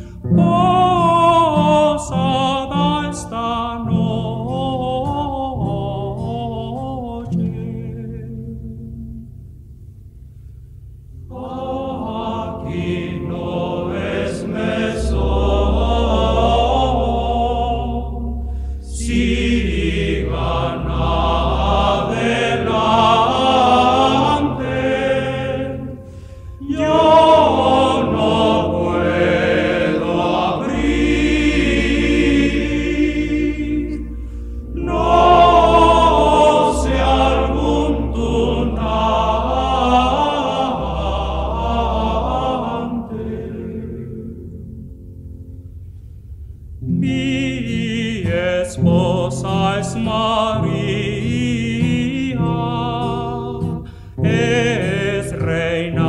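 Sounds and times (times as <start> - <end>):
choir singing: 0.0 - 9.0, 11.3 - 44.9, 46.9 - 56.0
low bass notes: 3.5 - 48.2.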